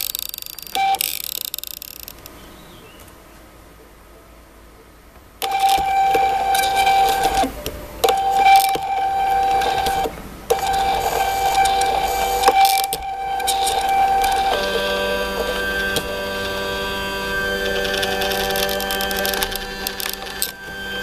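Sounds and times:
stepper motor whining: 5.4 - 21.0.

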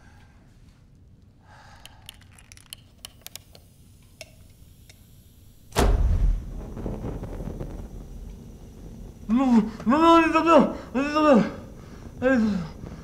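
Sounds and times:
blowtorch flame rushing: 5.6 - 13.0.

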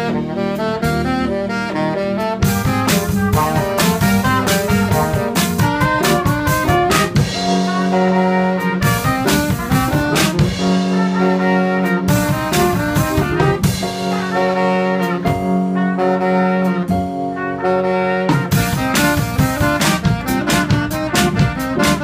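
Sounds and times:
drum kit: 0.0 - 22.0
saxophone: 0.0 - 22.0
trumpet: 0.0 - 22.0.

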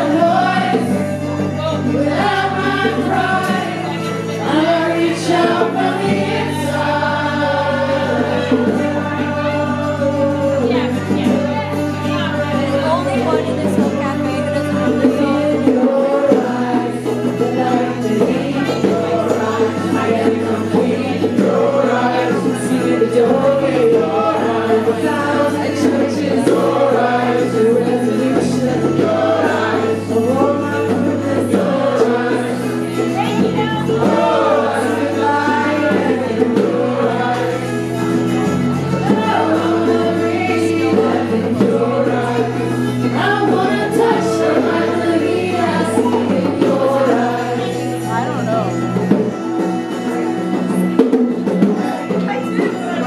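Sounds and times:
strummed acoustic guitar: 0.0 - 53.0
voices singing: 0.0 - 53.0.

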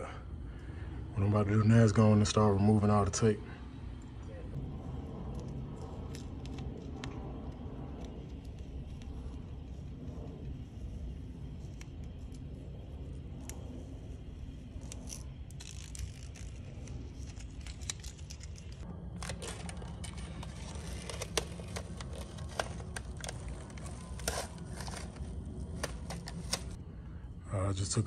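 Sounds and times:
masking tape peeling: 14.6 - 26.8.

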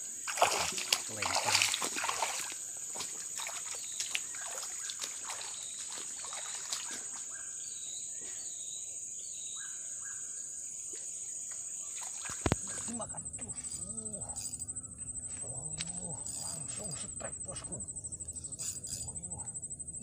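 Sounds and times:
high-pitched insect drone: 0.0 - 20.0
boots wading through water: 0.3 - 7.4.

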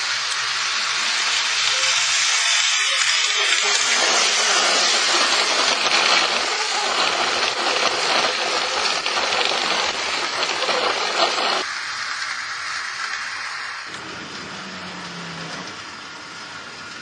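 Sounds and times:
model tram running on track: 0.0 - 17.0.

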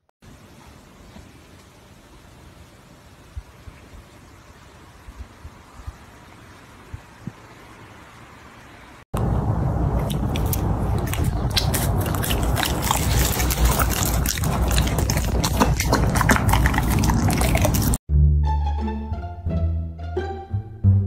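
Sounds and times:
puppy chewing wetly: 9.9 - 18.0.

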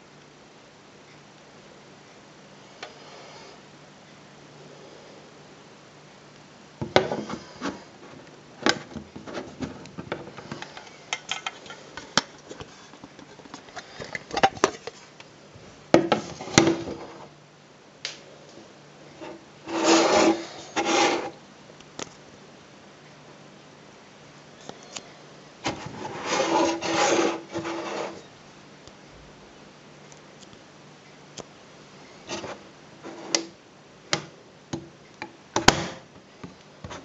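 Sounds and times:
rubbing scrapes: 19.2 - 21.4, 25.6 - 28.2.

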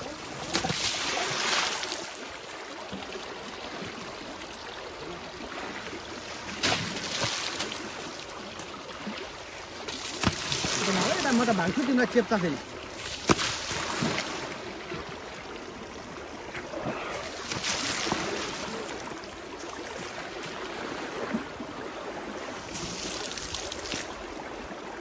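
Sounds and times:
elephant spraying water: 0.0 - 2.1, 9.9 - 11.8, 17.2 - 19.0
moving river water: 0.0 - 25.0.

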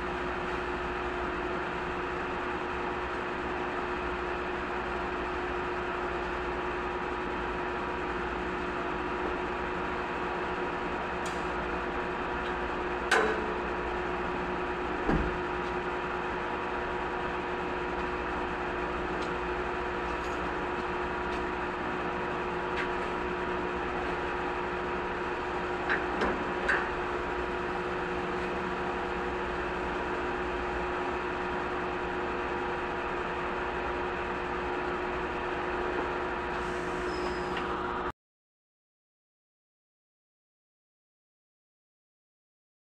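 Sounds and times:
steady mechanical hum: 0.0 - 38.1.

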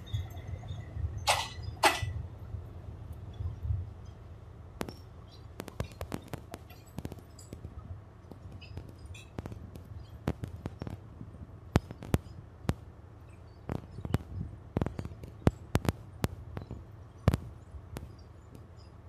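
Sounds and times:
train wheels clacking over rail joints: 0.0 - 2.2, 4.8 - 11.0
low steady rumble: 0.0 - 19.0.

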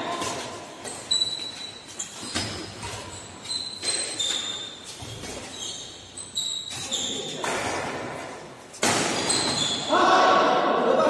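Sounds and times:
shoe squeaks on court floor: 0.1 - 7.6, 9.1 - 9.9.

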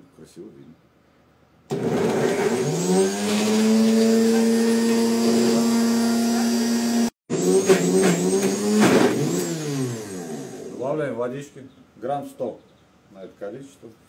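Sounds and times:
blender motor whining: 1.7 - 10.8.

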